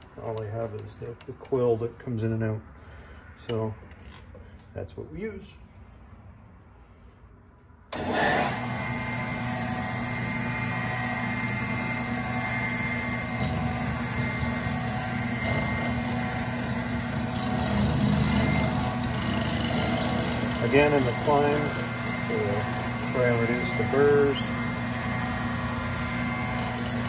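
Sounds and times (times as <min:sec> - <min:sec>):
lathe motor running with whine: 0:07.9 - 0:27.0.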